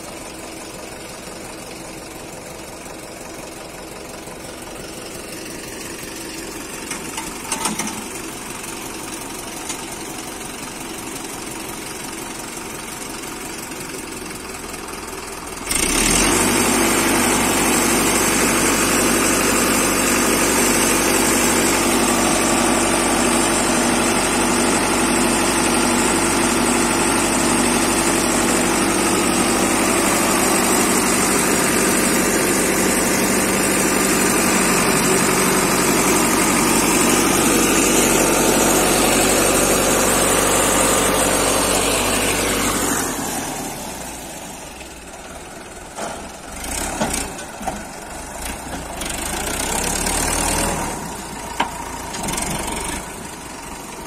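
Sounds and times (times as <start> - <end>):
tractor diesel engine running: 0.0 - 54.0
clunks and knocks: 6.9 - 8.2.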